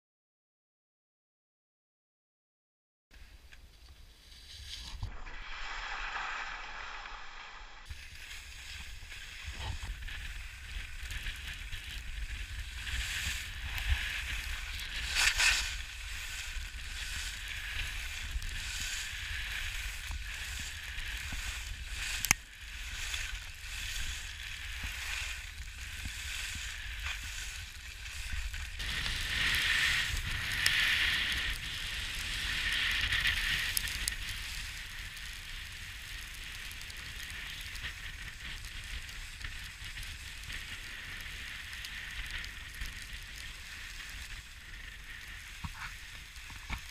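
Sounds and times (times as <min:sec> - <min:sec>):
skis scraping over snow: 0:03.2 - 0:46.9
wind rumbling on microphone: 0:03.4 - 0:46.9.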